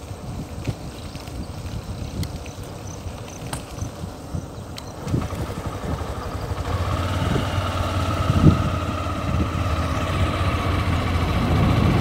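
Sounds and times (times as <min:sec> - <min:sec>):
wind rumble on microphone: 0:00.0 - 0:12.0
vehicle engine running: 0:05.0 - 0:12.0.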